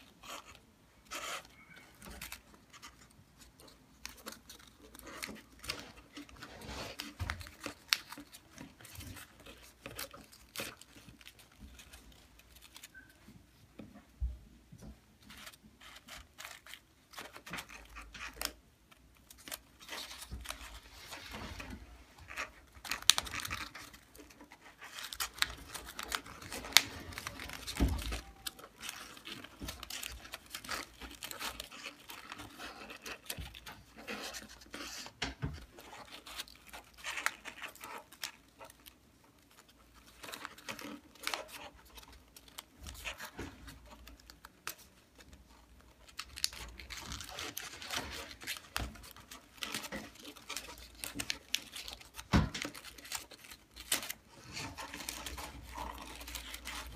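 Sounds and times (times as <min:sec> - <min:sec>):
paper clicks and scrapes: 0:00.0 - 0:13.6, 0:15.2 - 0:56.9
paper rustling and crinkling: 0:00.0 - 0:56.9.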